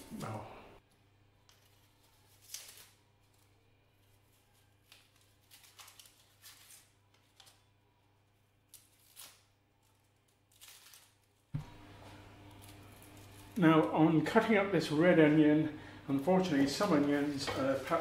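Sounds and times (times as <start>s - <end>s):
onion peeling and cutting: 0.0s - 11.3s, 12.2s - 14.2s.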